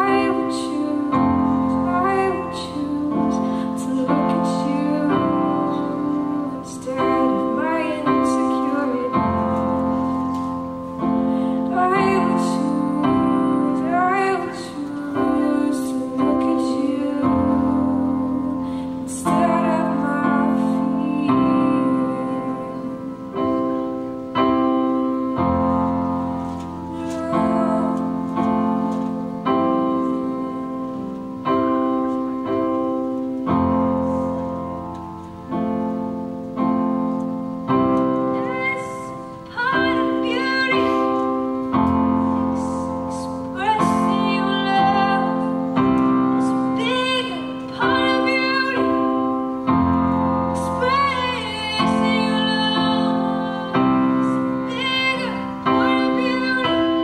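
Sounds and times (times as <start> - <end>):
person singing: 26.8 - 31.2.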